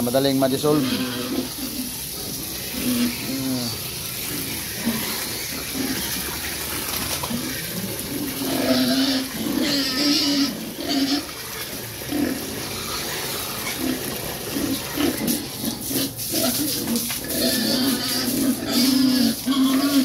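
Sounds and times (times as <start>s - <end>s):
pigs grunting and squealing: 0.0s - 20.0s
water running from hose into bucket: 0.0s - 20.0s.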